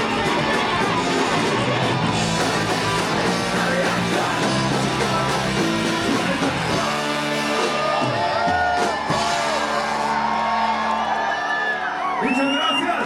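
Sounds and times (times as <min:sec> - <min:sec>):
person singing: 0:00.0 - 0:09.7
ska band playing live: 0:00.0 - 0:11.0.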